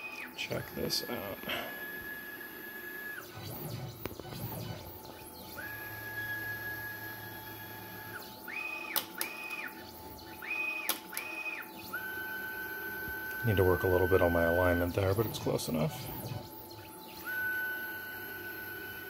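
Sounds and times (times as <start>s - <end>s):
stepper motors whining: 0.0s - 19.0s.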